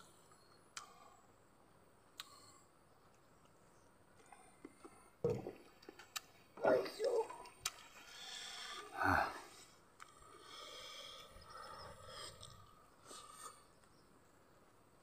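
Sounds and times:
small mouth clicks: 0.7s - 1.0s, 2.1s - 2.6s, 10.0s - 10.3s
wet chewing and smacking: 3.1s - 6.4s.

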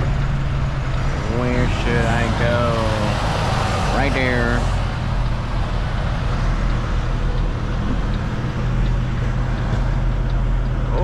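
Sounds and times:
diesel engine low hum: 0.0s - 11.0s.

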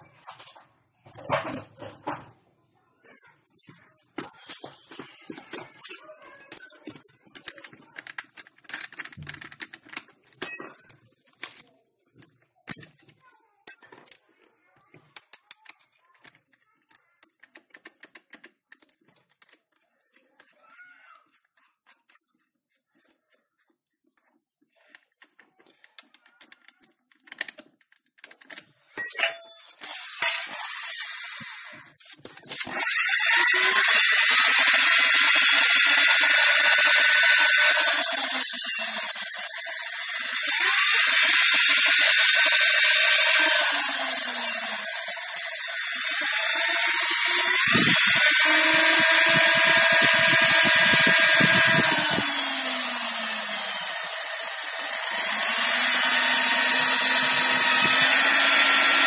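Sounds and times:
electric drill boring into wood: 29.8s - 59.0s.

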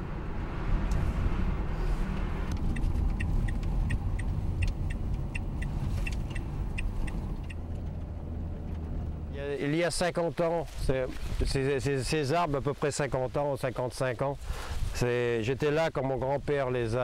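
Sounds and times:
van engine and road noise: 0.0s - 17.0s
light clinking ticks: 2.5s - 8.9s.

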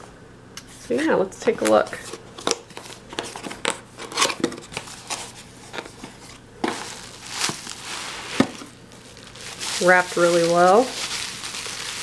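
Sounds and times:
bubble wrap rustling: 4.1s - 12.0s.

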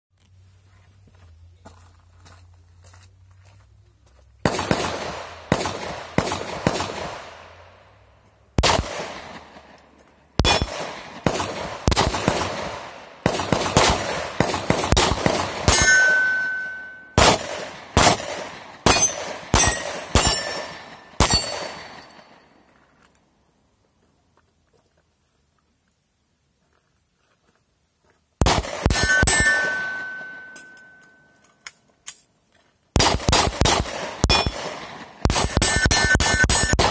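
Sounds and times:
pistol shots: 4.4s - 7.6s, 8.6s - 9.7s, 10.4s - 22.2s, 28.4s - 31.0s, 33.0s - 36.9s
steel targets clanging: 15.7s - 17.2s, 18.9s - 22.4s, 28.9s - 31.4s, 34.2s - 34.6s, 35.3s - 36.9s.

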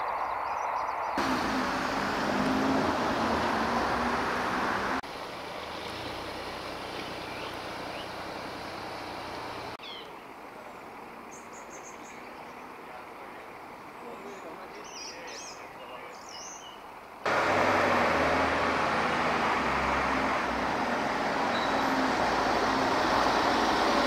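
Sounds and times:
fire engine running: 1.2s - 9.8s, 17.3s - 24.0s
birds chirping: 5.6s - 17.0s, 21.3s - 23.8s.

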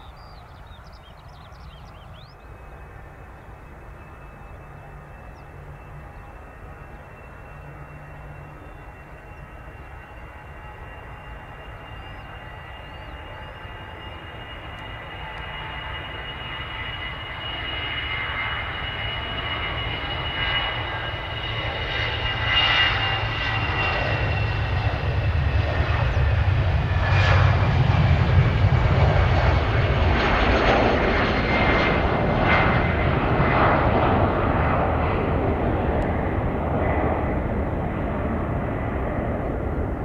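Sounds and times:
jet engines at takeoff: 0.0s - 40.0s.

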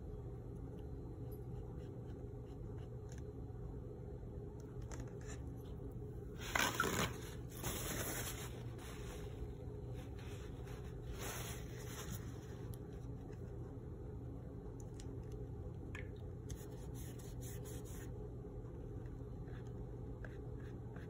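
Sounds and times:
steady low hum: 0.0s - 21.0s
paper towel rustling on wet paper: 6.4s - 12.7s.

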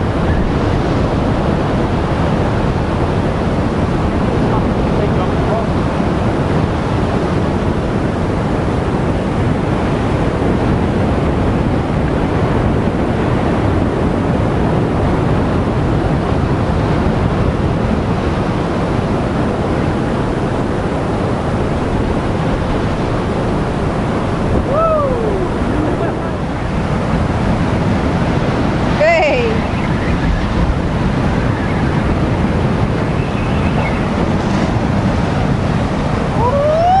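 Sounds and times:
surf breaking on rocks: 0.0s - 37.0s
wind buffeting microphone: 0.0s - 37.0s
short falling cry: 24.6s - 26.0s, 36.4s - 37.0s.

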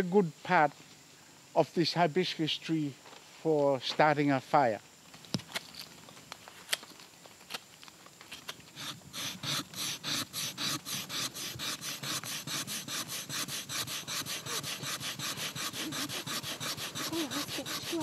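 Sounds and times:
wood rasping against wood: 8.7s - 18.0s.

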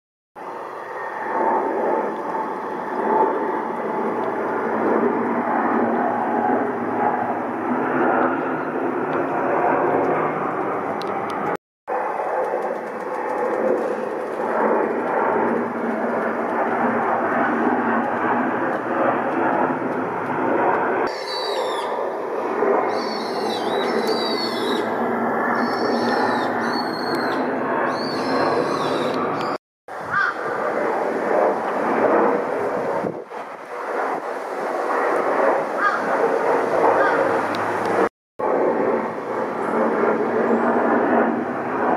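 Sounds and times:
jet airliner engines: 0.4s - 41.9s
bird squealing calls: 21.1s - 22.0s, 22.9s - 25.0s, 25.6s - 30.4s, 35.8s - 36.0s.

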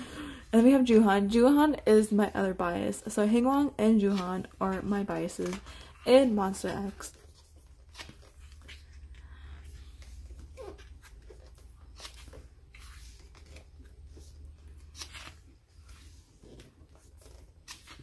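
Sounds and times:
pages turning: 4.0s - 18.0s.

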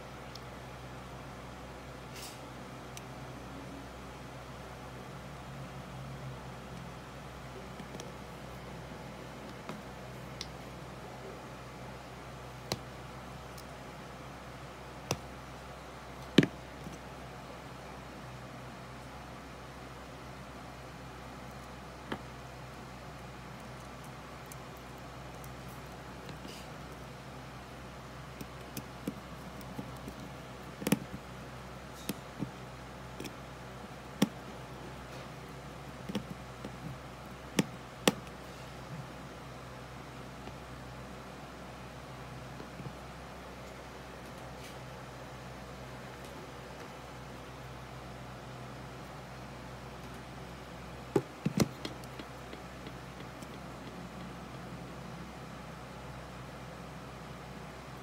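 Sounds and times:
clicks and knocks on rubber mat: 51.1s - 54.2s.

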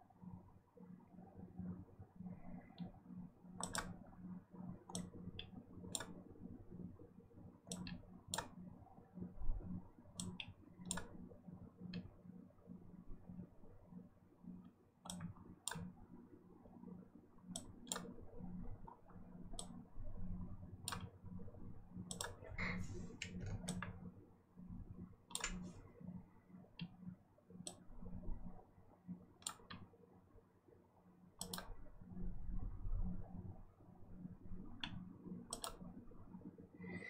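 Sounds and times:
faint low hum: 0.0s - 37.0s
computer mouse clicking: 2.6s - 4.1s, 4.8s - 6.3s, 7.6s - 8.6s, 10.1s - 12.1s, 14.6s - 16.0s, 17.5s - 18.2s, 18.8s - 19.8s, 20.8s - 21.2s, 22.0s - 24.0s, 25.3s - 25.8s, 26.7s - 28.0s, 29.4s - 29.9s, 31.4s - 31.8s, 34.6s - 36.0s.

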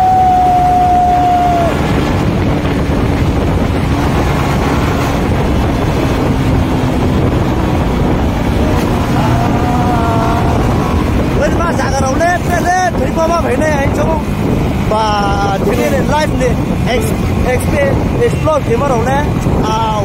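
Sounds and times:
vehicle road and engine noise: 0.0s - 20.0s
wind buffeting microphone: 0.0s - 20.0s.

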